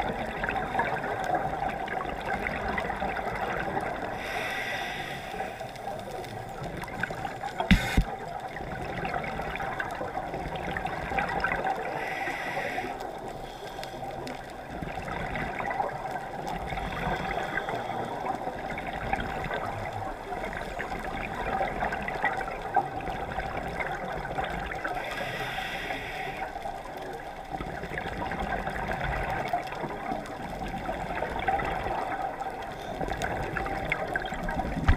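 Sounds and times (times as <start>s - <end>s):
scuba exhalation bubbles: 0.0s - 4.4s
muffled underwater rush: 0.0s - 34.9s.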